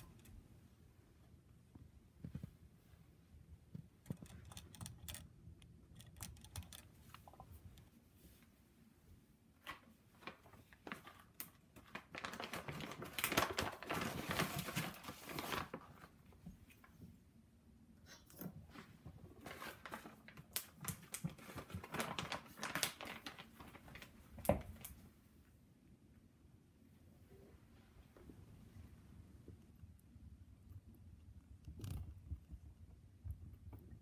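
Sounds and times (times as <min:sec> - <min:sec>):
scattered clicks: 0:03.8 - 0:07.3.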